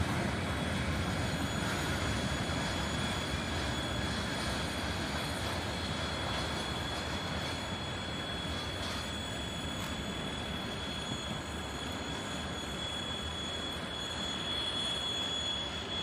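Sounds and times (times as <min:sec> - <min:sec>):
freight train rumbling: 0:00.0 - 0:16.0
high-pitched wheel squeal: 0:00.0 - 0:16.0.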